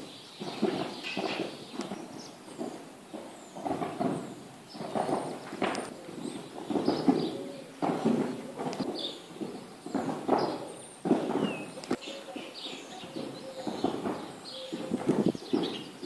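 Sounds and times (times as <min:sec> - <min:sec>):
horse hooves thudding on sand: 0:00.0 - 0:16.0
small birds chirping: 0:00.0 - 0:16.0.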